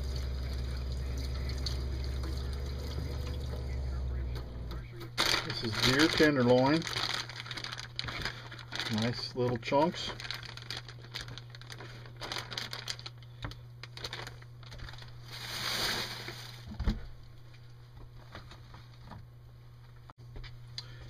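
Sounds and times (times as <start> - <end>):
low electrical hum: 0.0 - 21.0
plastic bag rustling and crinkling: 5.2 - 17.0.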